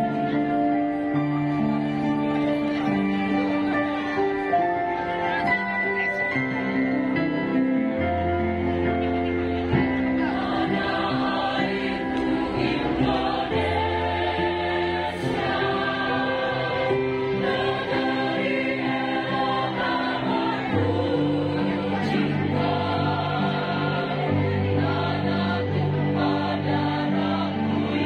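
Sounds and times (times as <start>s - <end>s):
choir singing: 9.8s - 28.0s.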